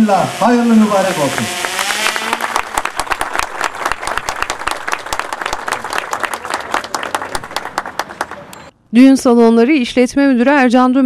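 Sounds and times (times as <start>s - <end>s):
crowd applauding: 1.3s - 8.6s.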